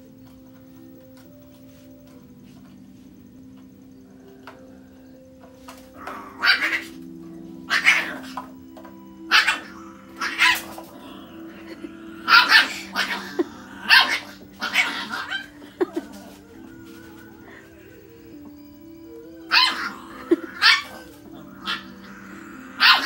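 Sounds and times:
puppy barking: 6.1 - 7.0, 7.7 - 8.5, 9.3 - 10.8, 11.5 - 15.9, 19.5 - 23.0.

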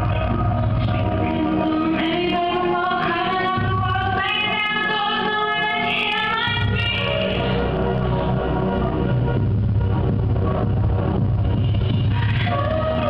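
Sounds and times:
dance music with bass: 0.0 - 13.0
person singing: 11.7 - 13.0.

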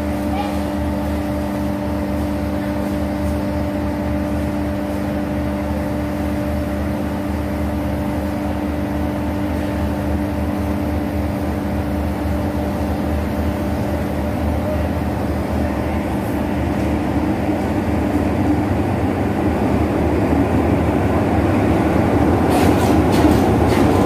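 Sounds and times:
diesel locomotive engine drone: 0.0 - 24.0.

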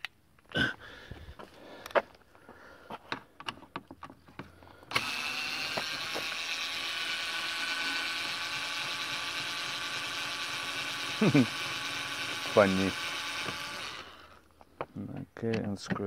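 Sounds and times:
steady mechanical noise: 4.9 - 14.5.

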